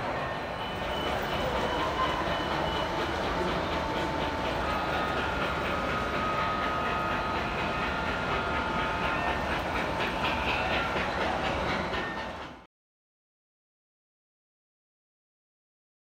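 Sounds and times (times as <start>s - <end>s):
model train running: 0.0s - 12.7s.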